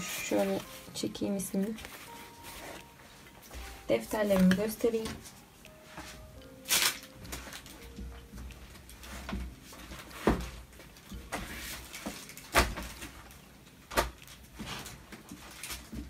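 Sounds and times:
soft rustling of items: 0.0 - 16.0.

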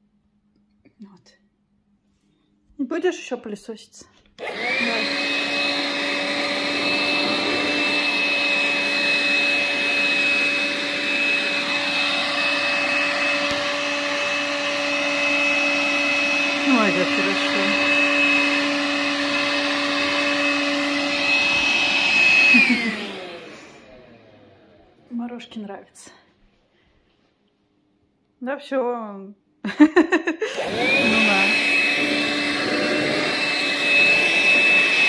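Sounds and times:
stick vacuum motor whine: 4.4 - 25.0, 30.5 - 35.0.

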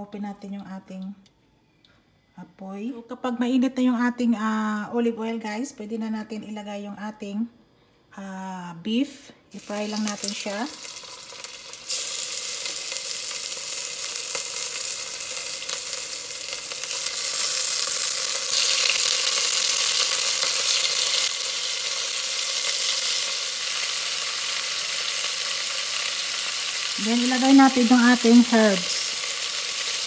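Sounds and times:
beef sizzling in hot oil: 9.5 - 30.0.

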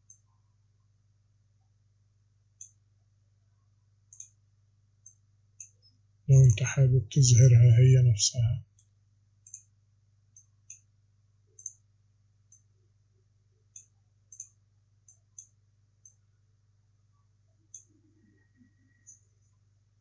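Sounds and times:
faint low hum: 0.0 - 20.0
computer mouse clicking: 2.6 - 2.8, 4.1 - 4.4, 5.0 - 5.8, 8.8 - 10.9, 11.6 - 11.9, 12.5 - 12.7, 13.7 - 16.2, 17.7 - 18.0, 18.9 - 19.3.

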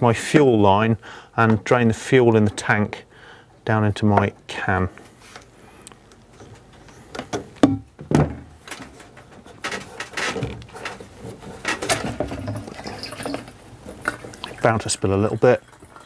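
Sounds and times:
scraping and rustling of fuel line: 8.6 - 14.6.

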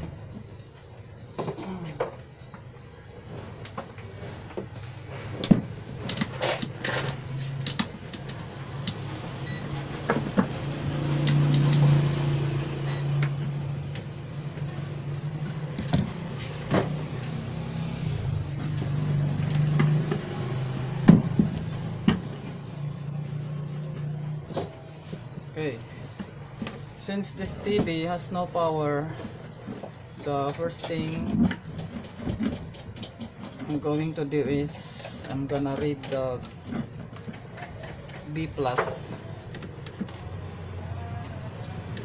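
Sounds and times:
wires and connectors clicking: 6.0 - 9.2, 11.1 - 12.3.

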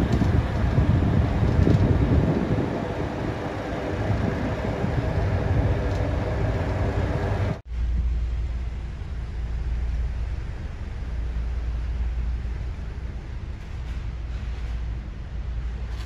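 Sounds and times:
boat engine rumbling: 0.0 - 16.0.

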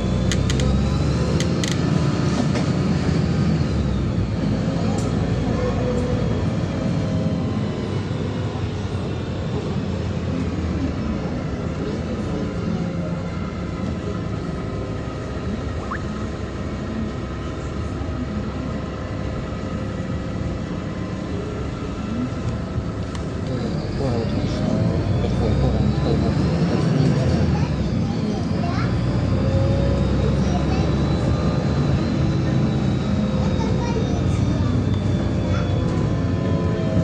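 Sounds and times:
bus engine hum: 0.0 - 37.0
road noise: 0.0 - 37.0.

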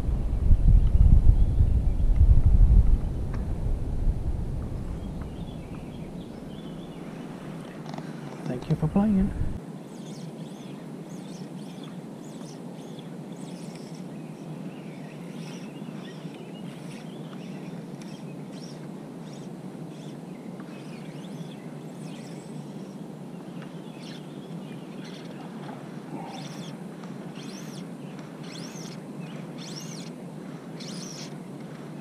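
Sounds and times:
low outdoor rumble: 0.0 - 7.9, 8.5 - 9.6
birds chirping and singing: 4.7 - 32.0.

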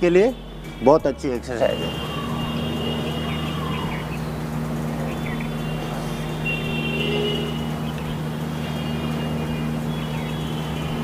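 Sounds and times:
faint high chirps: 1.6 - 11.0
low mechanical hum: 1.8 - 11.0.

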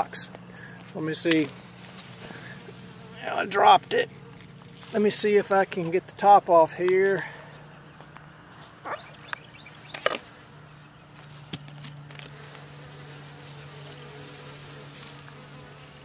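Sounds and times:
honeybees buzzing: 0.0 - 16.0.

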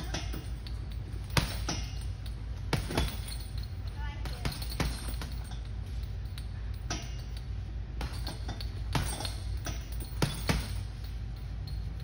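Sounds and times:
chains clinking: 0.0 - 12.0
gloves punching heavy bag: 2.7 - 3.4.

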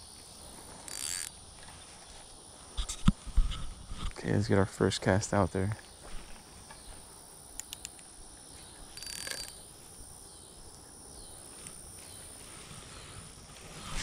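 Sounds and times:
insect drone: 0.0 - 14.0
fishing reel clicks: 0.9 - 1.4, 7.6 - 8.0, 8.9 - 9.6
fishing line swish: 13.6 - 14.0.

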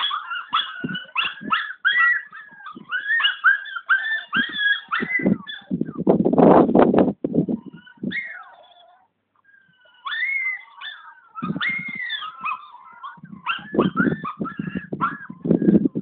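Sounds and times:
puppy whining and yipping: 0.0 - 6.0, 7.6 - 16.0
dull low thumps: 5.0 - 8.2, 13.2 - 16.0.

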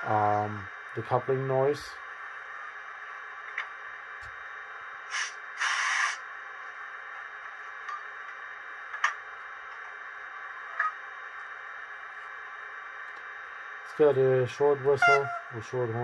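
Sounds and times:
steady speaker hiss: 0.0 - 16.0
air compressor running: 5.1 - 6.2
air hiss: 5.1 - 6.2.

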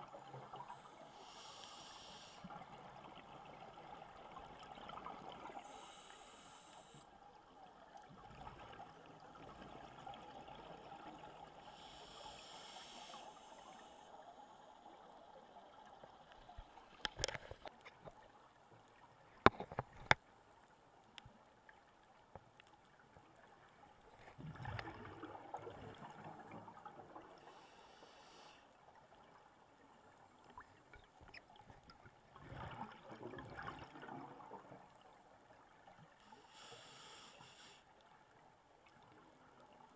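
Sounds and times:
regulator inhalation hiss: 0.6 - 2.5, 5.6 - 7.1, 11.6 - 14.2, 27.4 - 28.6, 36.3 - 37.8.

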